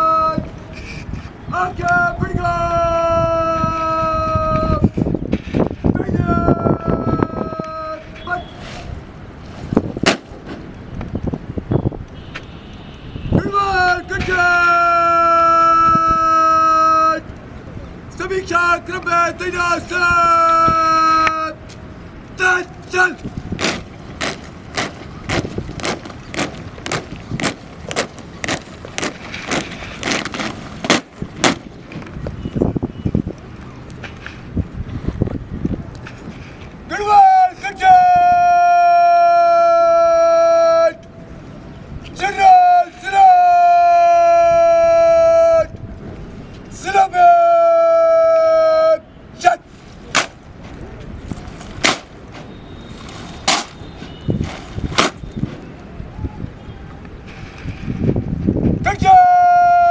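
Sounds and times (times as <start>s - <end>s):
person shouting commands: 0.0s - 0.5s, 1.5s - 4.9s, 6.0s - 8.6s, 13.4s - 17.3s, 18.2s - 21.6s, 22.4s - 23.8s, 36.9s - 41.0s, 42.2s - 45.8s, 46.7s - 49.7s, 58.8s - 59.9s
soldiers drill cracks: 23.2s - 32.2s, 51.6s - 52.2s, 54.4s - 55.3s.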